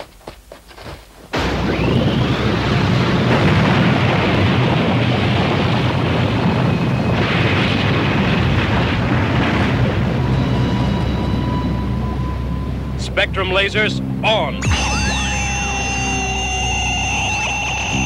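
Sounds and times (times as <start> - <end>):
rising whine: 1.4 - 4.0, 10.0 - 18.0
rushing roar with deep rumble: 1.4 - 13.1.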